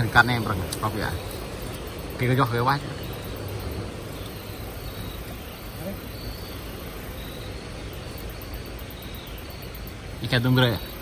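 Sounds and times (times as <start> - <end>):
river flowing: 0.0 - 11.0.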